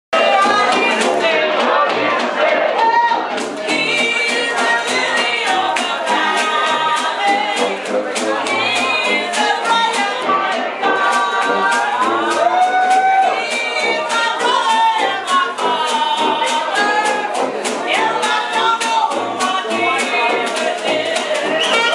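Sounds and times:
audience singing along: 0.2 - 21.9
live band playing spiritual: 0.2 - 21.9.

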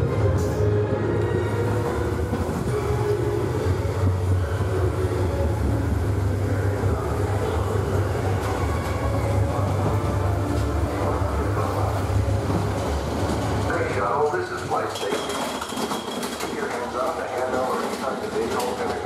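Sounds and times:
roller coaster rumbling on track: 0.0 - 19.0.

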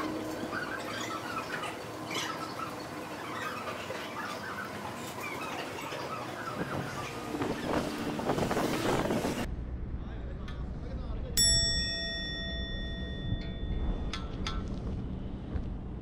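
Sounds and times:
birds chirping and squawking: 0.0 - 7.9.

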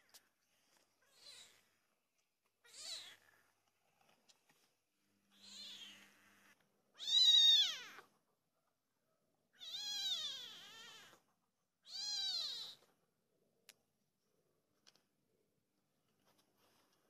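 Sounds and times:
kitten meowing: 5.3 - 6.1, 7.0 - 8.1, 9.6 - 11.2, 11.8 - 12.9.

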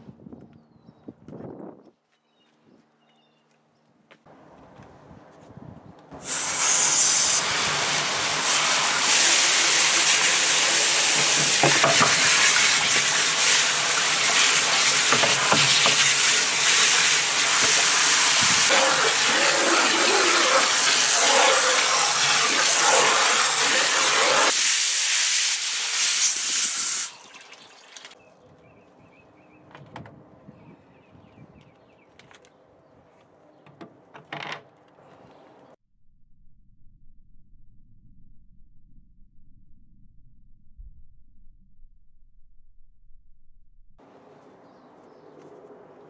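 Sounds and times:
hose water spraying into tank: 6.2 - 28.2.

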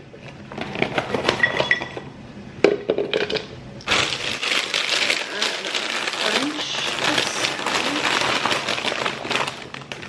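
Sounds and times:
plastic bag rustling: 3.9 - 10.0.

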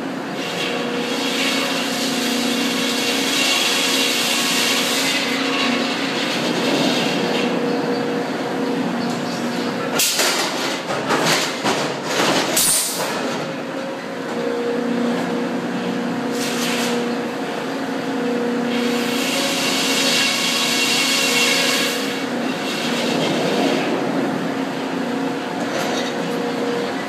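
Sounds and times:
machinery hum: 0.0 - 27.0
clanks and clatter: 9.0 - 13.5.

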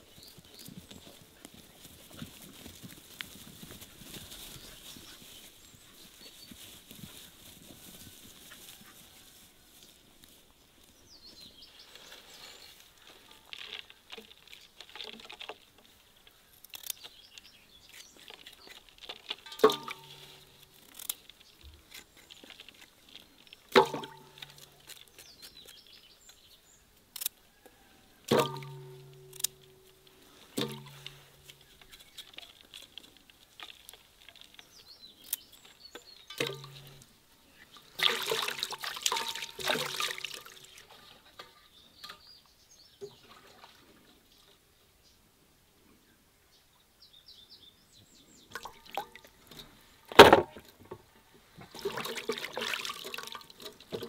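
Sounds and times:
carrots knocking into wooden crate: 50.1 - 50.6.

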